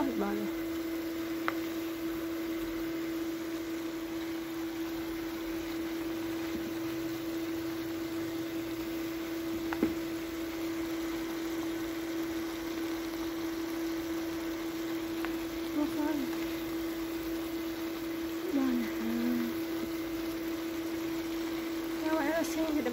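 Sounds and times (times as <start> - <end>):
food sizzling in a pan: 0.0 - 22.9
induction cooktop humming: 0.0 - 22.9
spatula tapping a pan: 9.7 - 10.0.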